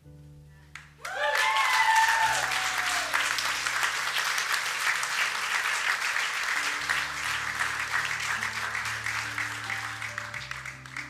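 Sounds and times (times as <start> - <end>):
soft low musical notes: 0.0 - 1.0
crowd applauding: 0.8 - 11.0.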